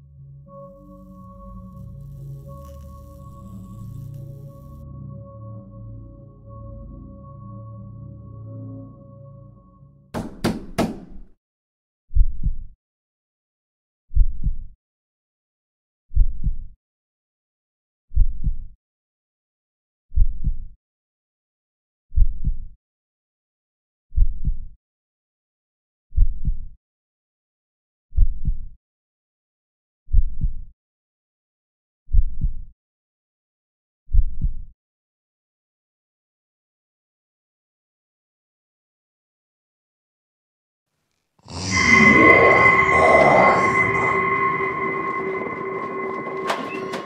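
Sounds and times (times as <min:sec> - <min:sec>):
sharp hits: 0:10.2 - 0:11.3, 0:41.5 - 0:47.0.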